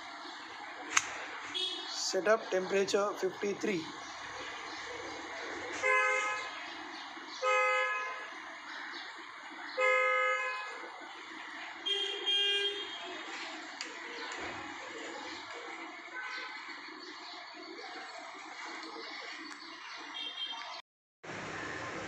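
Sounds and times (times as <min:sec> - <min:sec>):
vehicle horns honking: 0:01.5 - 0:02.1, 0:05.8 - 0:06.6, 0:07.4 - 0:08.3, 0:09.8 - 0:10.8, 0:11.8 - 0:13.2.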